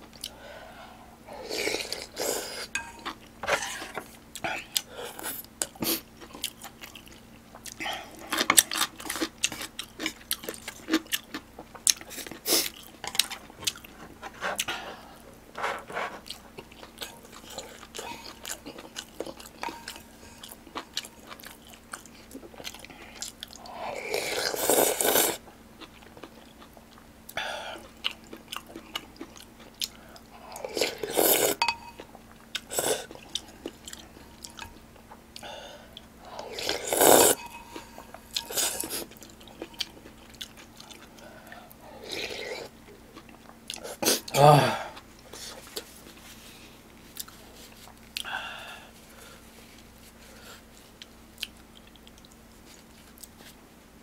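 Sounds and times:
person chewing and smacking: 0.0s - 0.4s, 4.3s - 15.3s, 16.2s - 23.7s, 24.4s - 46.2s, 50.8s - 53.6s
loud noisy eating sounds: 35.4s - 45.8s.

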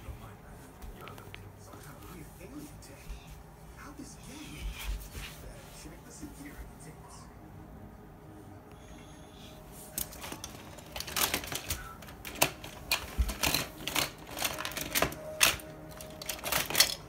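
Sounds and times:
toy trains clattering in plastic tub: 10.0s - 17.0s.

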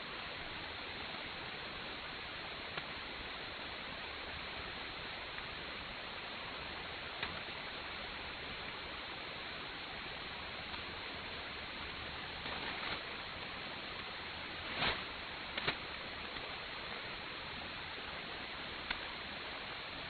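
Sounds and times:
shortwave radio hiss: 0.0s - 20.0s
static crackles: 0.0s - 20.0s.

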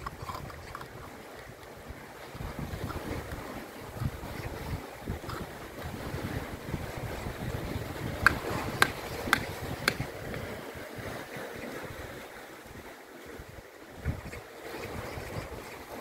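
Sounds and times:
wind rumble on microphone: 0.0s - 16.0s
knife tapping on oysters: 8.3s - 10.0s.

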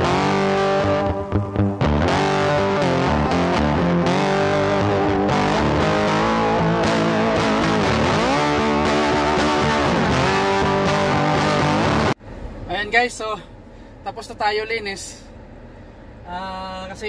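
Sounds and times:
rock music with electric guitar: 0.0s - 12.2s.

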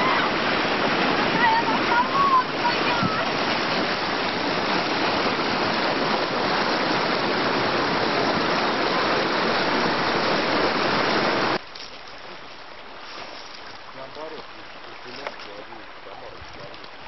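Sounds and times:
river rapids rushing: 0.0s - 17.0s.

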